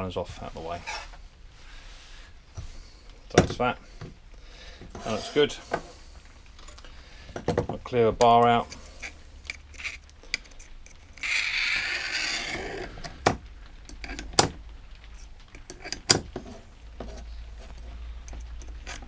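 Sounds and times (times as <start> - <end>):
tool scraping metal groove: 4.9 - 5.9, 10.9 - 13.1.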